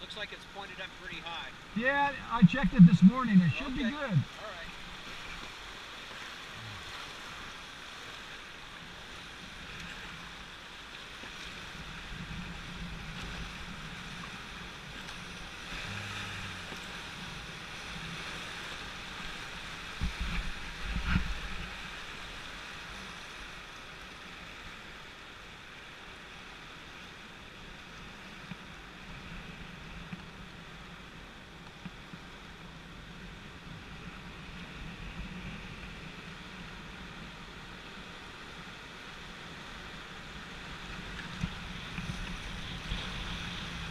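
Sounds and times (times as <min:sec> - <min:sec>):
whitewater rushing: 0:01.5 - 0:04.9, 0:15.6 - 0:17.2.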